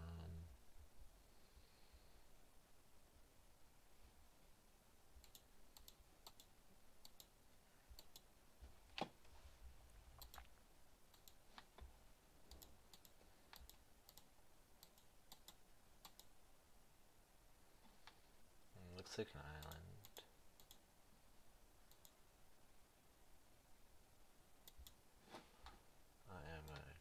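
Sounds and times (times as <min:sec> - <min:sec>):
mouse and keyboard clicking: 0:05.2 - 0:07.3, 0:08.0 - 0:08.3, 0:10.2 - 0:10.5, 0:11.1 - 0:11.7, 0:12.5 - 0:16.3, 0:19.6 - 0:20.8, 0:24.7 - 0:25.0.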